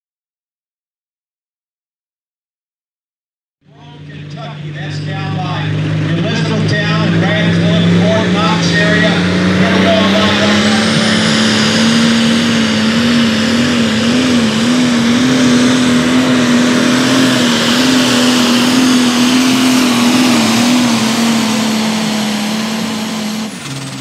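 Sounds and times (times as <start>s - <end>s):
tractor diesel engine droning: 3.6s - 24.0s.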